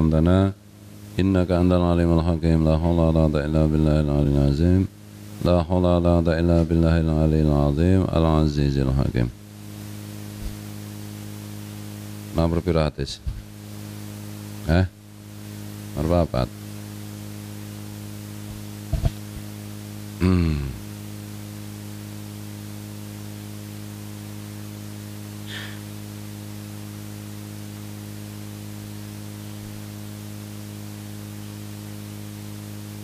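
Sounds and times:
electrical hum with hiss: 0.0s - 33.0s
man's brief vocal sound: 20.2s - 20.8s.

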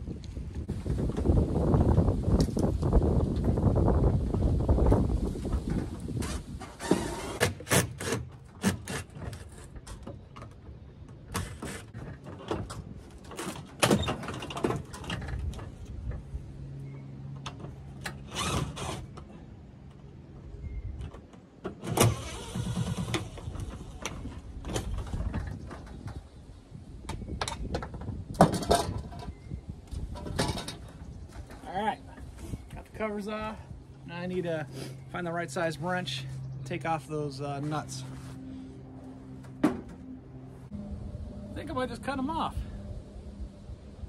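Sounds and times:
wind rumbling on microphone: 0.0s - 7.8s, 14.0s - 17.0s, 20.4s - 21.3s, 22.0s - 34.0s, 40.6s - 44.0s
clicks and clatter on metal roof: 5.5s - 16.3s, 21.0s - 26.3s, 27.1s - 31.6s.

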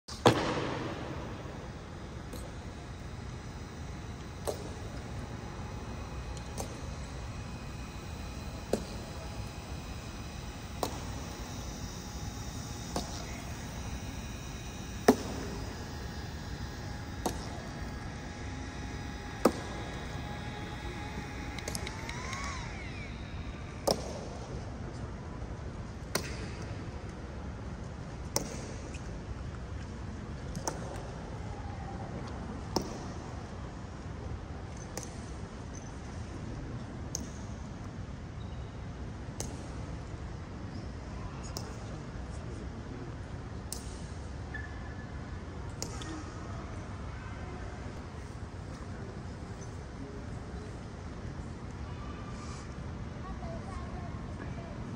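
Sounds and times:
hall background hum: 0.1s - 26.0s
steady background noise: 0.1s - 54.9s.

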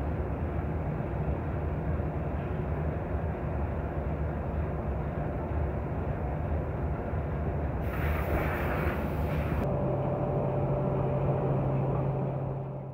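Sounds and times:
hiss: 7.8s - 9.6s
workshop machinery rumbling: 7.8s - 12.9s.

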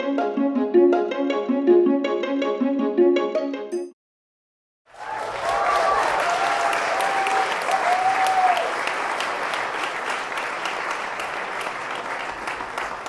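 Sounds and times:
audience clapping and cheering: 4.9s - 13.0s
drawn-out whoops: 5.5s - 8.7s.

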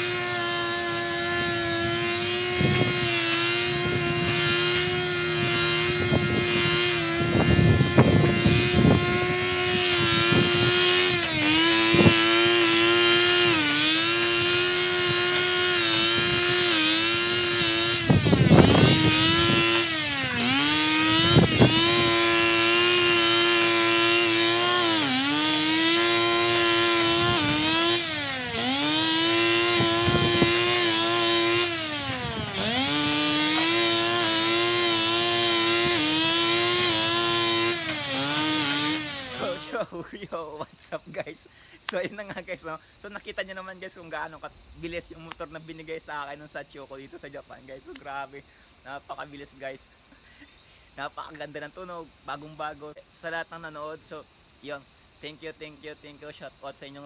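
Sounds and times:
brush cutter engine running: 0.0s - 53.0s.

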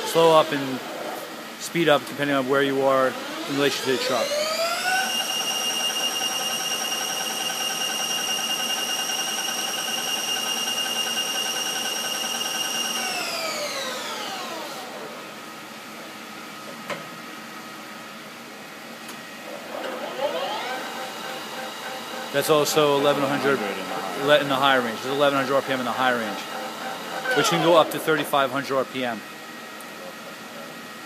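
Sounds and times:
lathe spindle whine: 2.7s - 15.4s, 19.5s - 28.5s.

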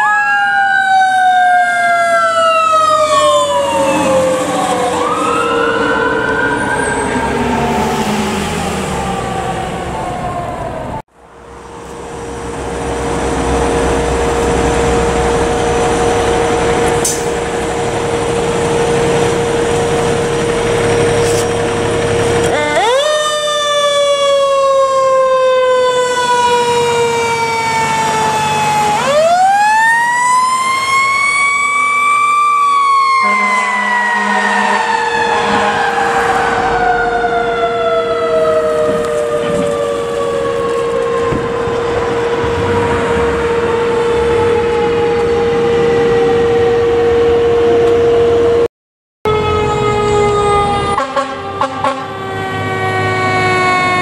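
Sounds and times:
fire engine siren: 0.0s - 54.0s.

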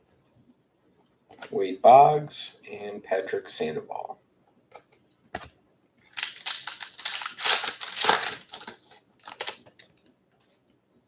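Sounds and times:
foil wrapper crinkling: 6.0s - 10.0s.

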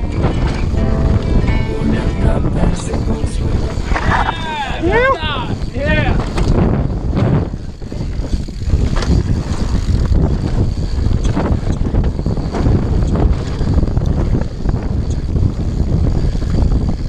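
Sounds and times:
bike rattles and knocks: 0.0s - 0.8s, 5.4s - 17.0s
wind buffeting microphone: 0.0s - 17.0s.

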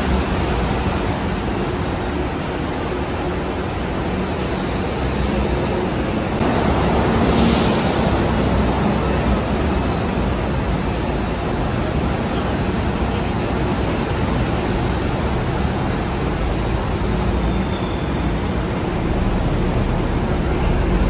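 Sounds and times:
bus engines rumbling: 0.0s - 21.0s
air brake hiss: 4.2s - 5.6s, 7.2s - 8.3s.

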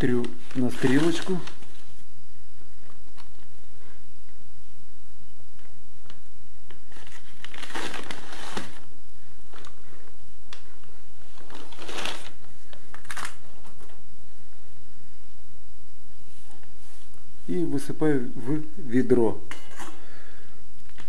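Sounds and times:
sack rustling and crinkling: 0.4s - 1.9s, 6.9s - 8.9s, 11.3s - 12.4s.

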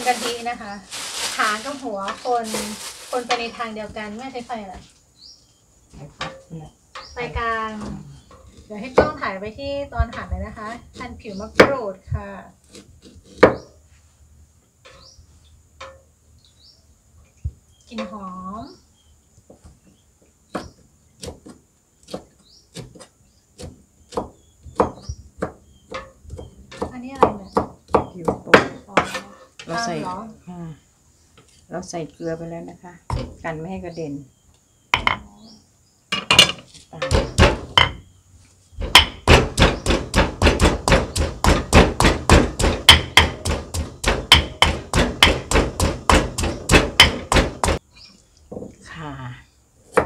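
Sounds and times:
pestle pounding in stone mortar: 23.6s - 29.2s, 37.0s - 38.0s, 38.8s - 47.8s
knife chopping on wooden block: 38.8s - 47.8s.

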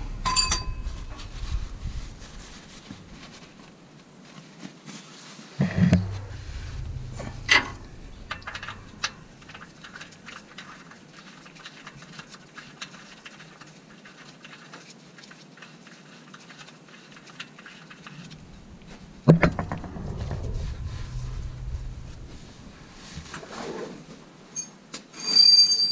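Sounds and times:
sharp knock: 18.5s - 23.0s.

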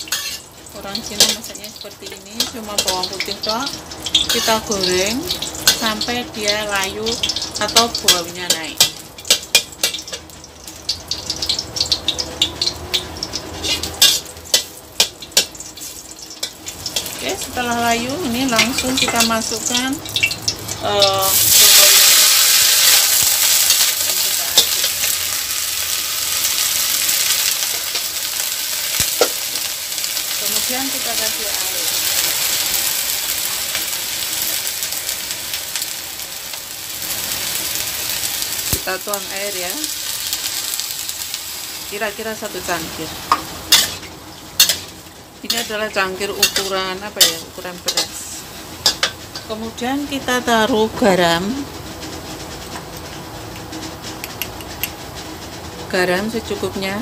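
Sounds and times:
metal spatula scraping a pan: 0.0s - 0.5s, 4.1s - 4.7s, 13.5s - 17.2s, 43.3s - 49.5s
garlic sizzling in oil: 0.0s - 55.2s.

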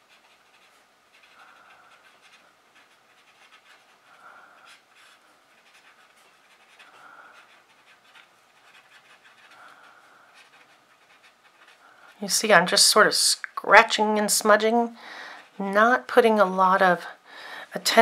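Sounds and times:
paper stump scratching on paper: 0.0s - 12.2s.

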